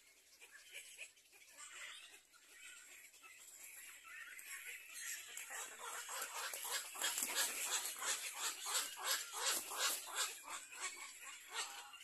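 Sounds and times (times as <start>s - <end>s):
heron chicks calling raspily: 4.4s - 12.0s.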